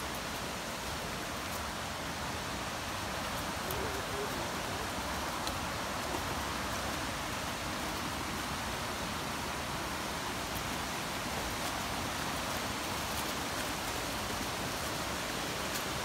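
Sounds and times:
waterfall and stream rushing: 0:00.0 - 0:16.0.

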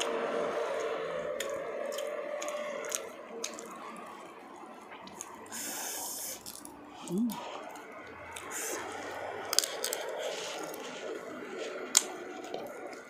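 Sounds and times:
shrimp shells cracking: 0:09.5 - 0:10.9.

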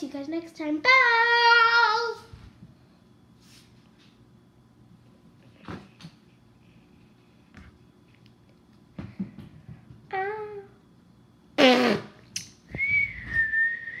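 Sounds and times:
child blowing a raspberry: 0:11.6 - 0:12.2.

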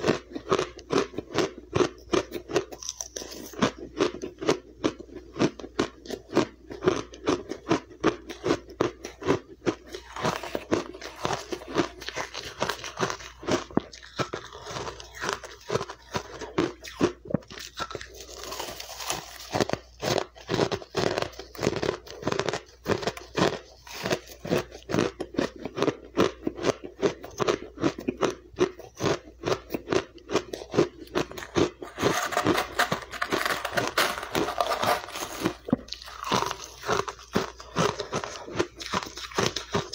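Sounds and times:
ice being chewed: 0:00.0 - 0:39.9
rustling scrape through ice: 0:31.8 - 0:35.7.

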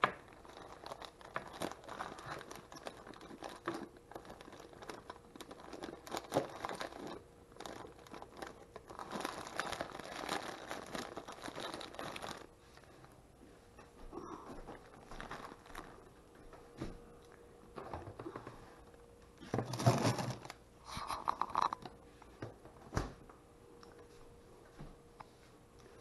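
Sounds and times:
plastic bag crinkling: 0:00.0 - 0:13.0, 0:14.6 - 0:16.2, 0:19.5 - 0:22.0.

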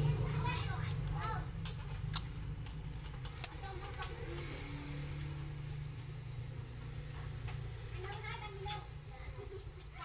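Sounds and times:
tape handling noises: 0:00.8 - 0:04.6.

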